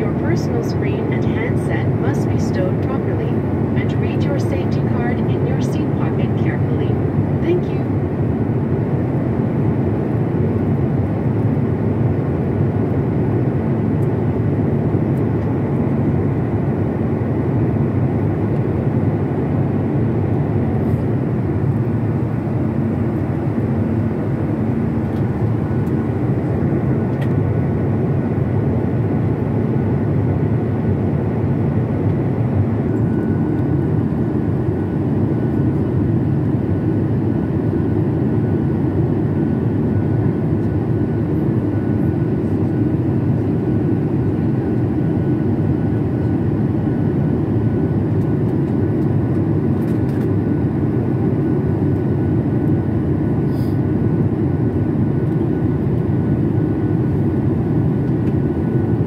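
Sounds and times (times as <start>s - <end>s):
jet engine roar in cabin: 0.0s - 59.0s.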